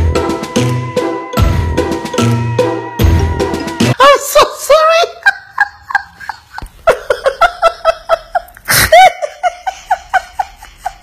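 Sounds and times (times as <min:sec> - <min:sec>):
woman laughing hard: 0:04.0 - 0:11.0.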